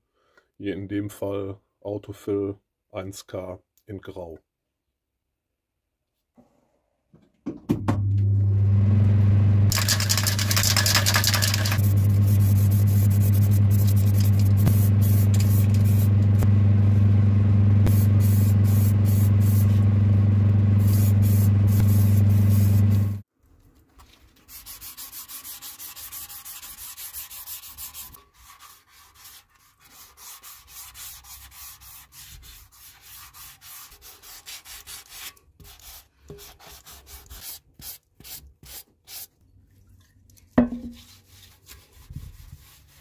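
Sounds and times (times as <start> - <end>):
electric motor humming: 8.8 - 23.2
paint spray hissing: 9.7 - 16.2, 17.9 - 19.8, 20.8 - 22.9.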